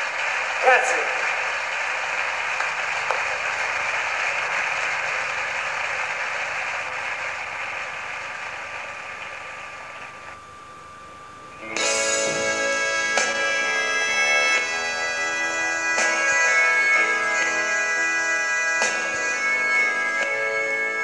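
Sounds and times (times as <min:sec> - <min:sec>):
steady mechanical noise: 0:00.0 - 0:21.0
faint steady tone: 0:08.6 - 0:21.0.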